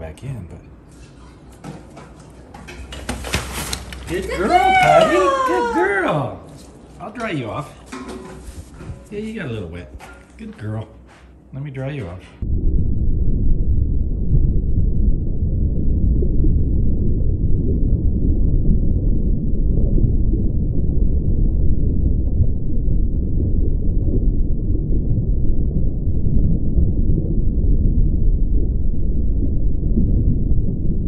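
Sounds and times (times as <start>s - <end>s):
deep muffled rumble: 12.4s - 31.0s.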